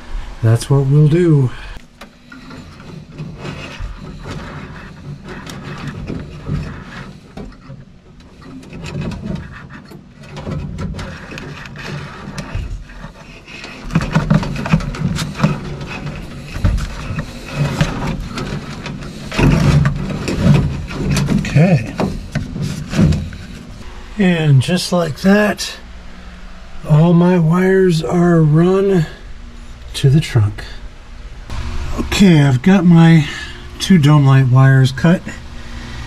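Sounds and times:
low man's voice: 0:00.4 - 0:01.8, 0:24.1 - 0:25.9, 0:26.8 - 0:29.2, 0:29.9 - 0:30.8, 0:31.9 - 0:35.4
wires scraping on sheet metal: 0:01.8 - 0:23.9.

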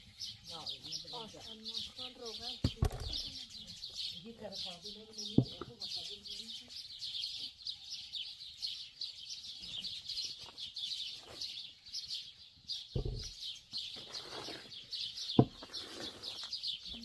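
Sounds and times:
songbirds chirping: 0:00.0 - 0:17.0
dull thump: 0:13.0 - 0:13.3.

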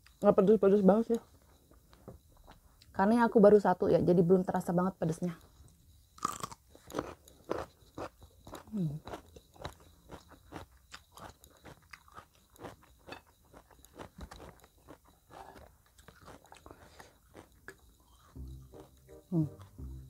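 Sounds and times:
person chewing crunchy food: 0:06.2 - 0:20.0.

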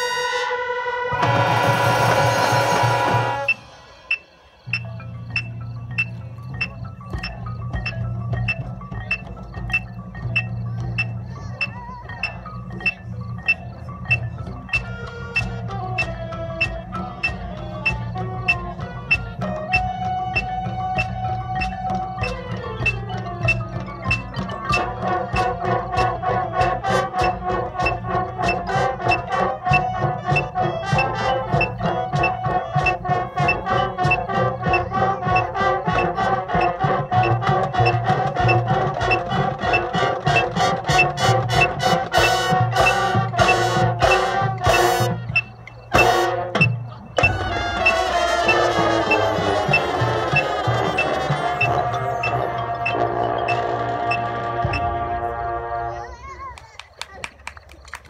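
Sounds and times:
marching band playing: 0:00.0 - 0:56.4
marimba: 0:02.4 - 0:55.4.

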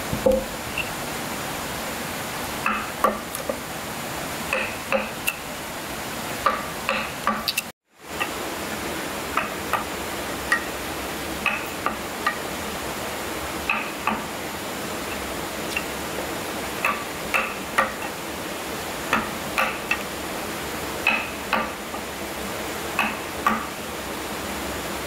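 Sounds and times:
steady hiss: 0:00.0 - 0:25.0.

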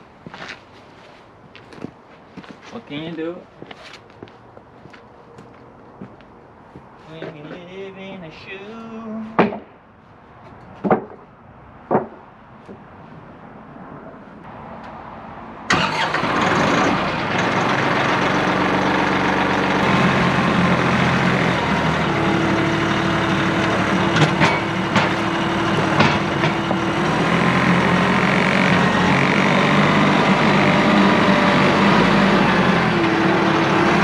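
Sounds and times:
sharp knocks: 0:09.4 - 0:09.8, 0:10.8 - 0:11.3, 0:11.9 - 0:12.8, 0:24.1 - 0:26.9
compact loader engine running: 0:15.7 - 0:34.0.

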